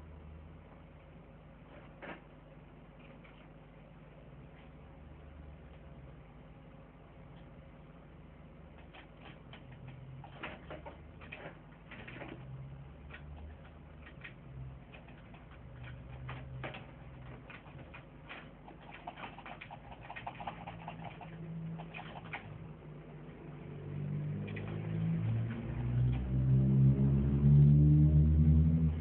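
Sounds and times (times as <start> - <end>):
faint clicks and ticks: 8.7 - 22.6.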